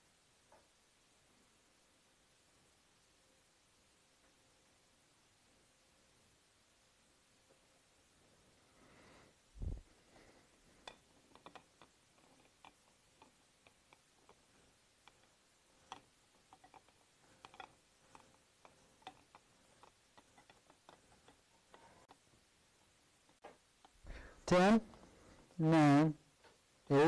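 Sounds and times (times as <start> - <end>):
faint irregular clicks and taps: 0.4 - 0.8, 9.6 - 25.6, 26.4 - 26.9.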